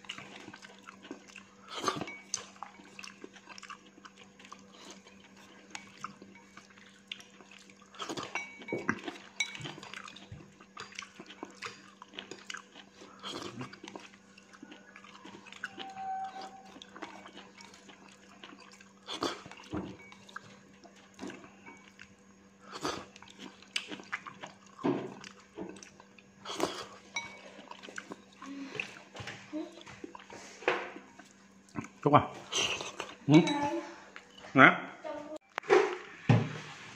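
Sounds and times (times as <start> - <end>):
person chewing noodles: 0.0 - 33.5.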